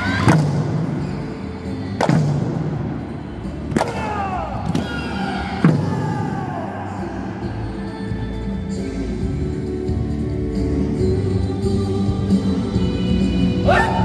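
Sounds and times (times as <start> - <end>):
drums struck in unison: 5.6 - 6.4.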